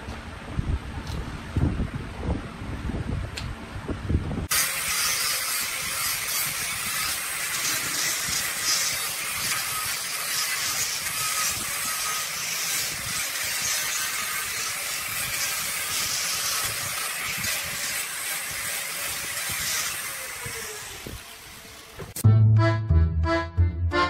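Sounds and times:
angle grinder sanding wood: 4.5 - 22.2.

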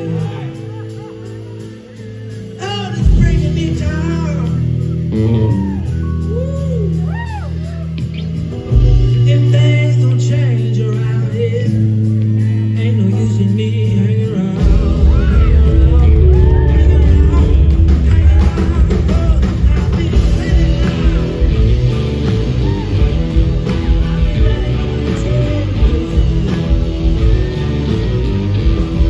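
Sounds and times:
blues-rock band playing loud: 0.0 - 29.0.

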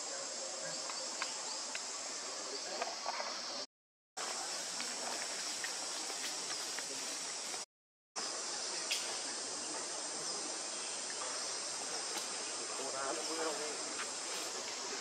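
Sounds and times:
forest insect chorus: 0.0 - 7.6, 8.2 - 15.0.

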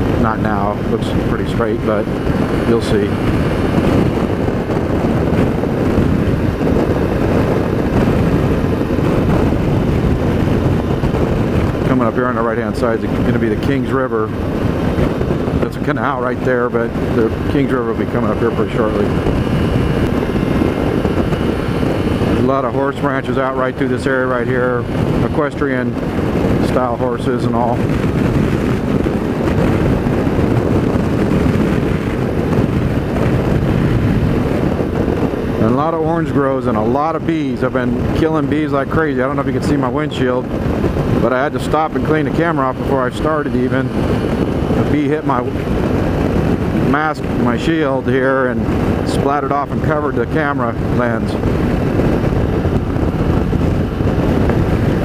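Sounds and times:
motorcycle road noise: 0.0 - 55.0
wind buffeting microphone: 0.0 - 55.0.

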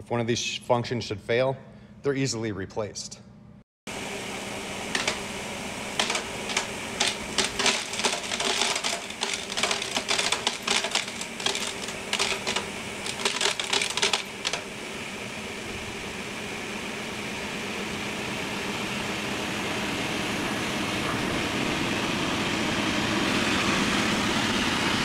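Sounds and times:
floor scrubber humming: 3.9 - 25.0
metal pieces clattering: 6.0 - 14.6.

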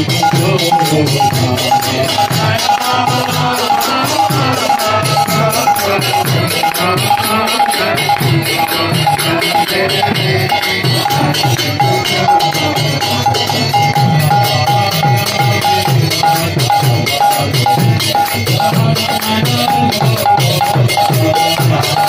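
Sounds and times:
barrel drum beat: 0.0 - 22.0
hand cymbals clashing: 0.0 - 22.0
singer and crowd chanting: 0.0 - 22.0.

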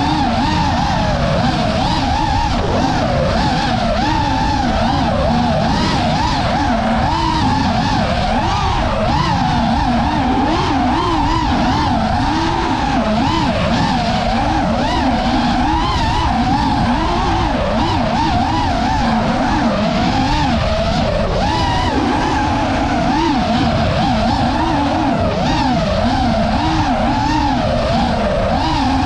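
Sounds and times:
drone motors whining: 0.0 - 29.0
wind rumbling on microphone: 0.0 - 29.0.

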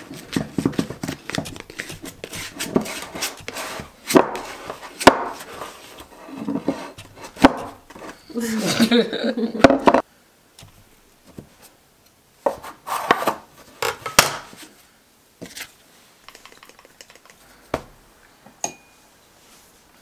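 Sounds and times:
dough slapping and scraping: 0.0 - 8.7.

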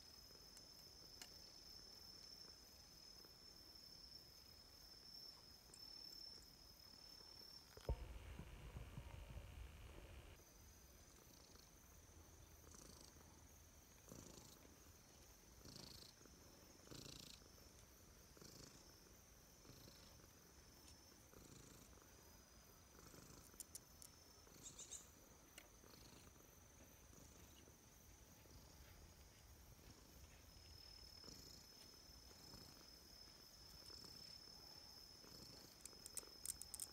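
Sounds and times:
cat purring softly: 7.7 - 10.4, 12.6 - 13.4, 14.0 - 14.8, 15.6 - 20.6, 21.2 - 22.2, 22.8 - 24.8, 33.8 - 36.9.

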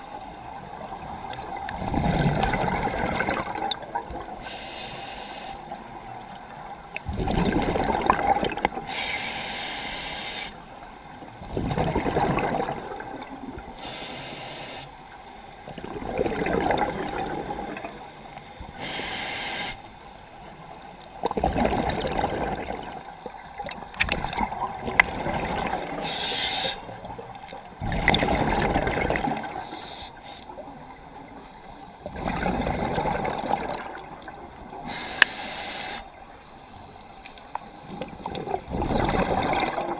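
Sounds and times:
exhaled bubbles rushing: 1.2 - 4.4, 7.0 - 8.8, 11.5 - 13.6, 15.7 - 18.0, 21.2 - 26.0, 27.8 - 29.7, 32.0 - 34.8, 37.8 - 39.9
regulator inhale hiss: 4.4 - 5.7, 8.8 - 10.6, 13.7 - 15.1, 18.4 - 20.2, 26.0 - 27.0, 29.5 - 30.6, 31.4 - 32.1, 34.8 - 37.8.

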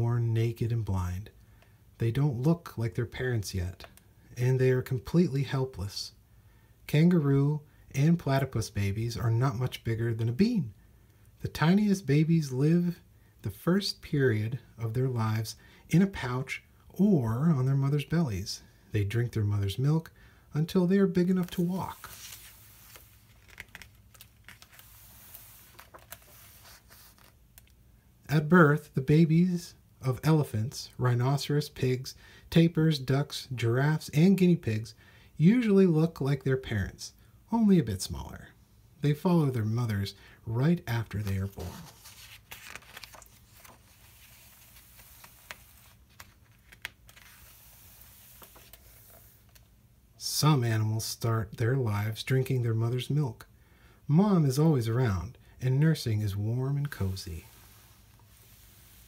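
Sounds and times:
low steady hiss: 0.0 - 59.0
paper page rustling: 21.2 - 27.8, 41.0 - 49.7, 56.8 - 59.0.

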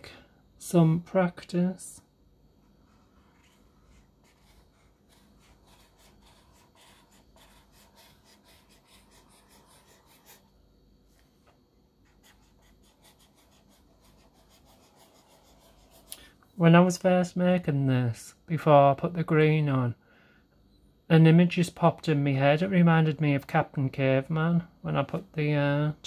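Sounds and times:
pen nib scratching on paper: 2.9 - 10.5, 12.0 - 16.2.

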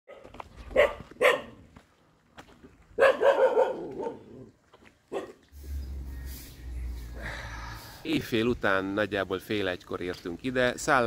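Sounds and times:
dog barking: 0.1 - 1.6, 3.0 - 4.4, 5.1 - 5.4.

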